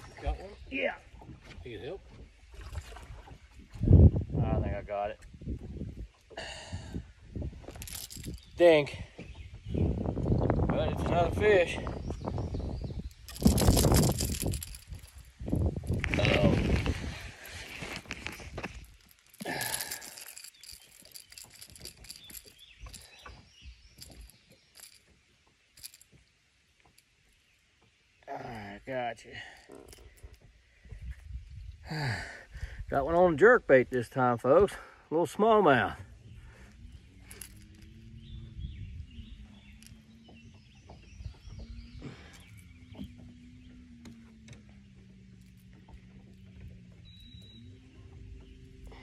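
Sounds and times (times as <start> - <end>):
plastic lure and hooks rattling: 7.6 - 8.9, 13.1 - 23.4, 24.0 - 25.1, 25.8 - 26.2, 29.6 - 30.4, 37.0 - 38.0
birds chirping and singing: 7.6 - 25.1, 35.8 - 49.0
fish scuffle: 13.3 - 23.1.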